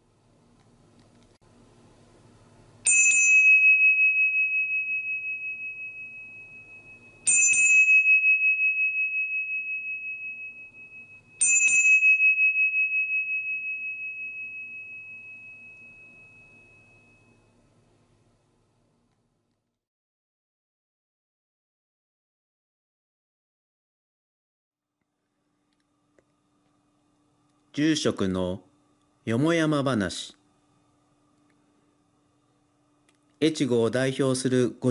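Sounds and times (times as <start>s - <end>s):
bowl bell ringing: 2.8s - 17.7s.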